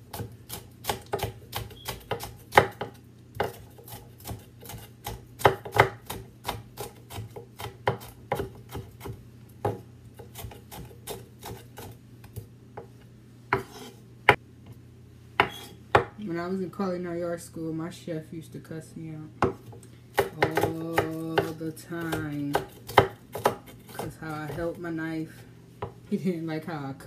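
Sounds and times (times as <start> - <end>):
knife chopping on wooden board: 0.1 - 12.9, 13.5 - 14.4, 15.4 - 16.2, 19.4 - 24.7.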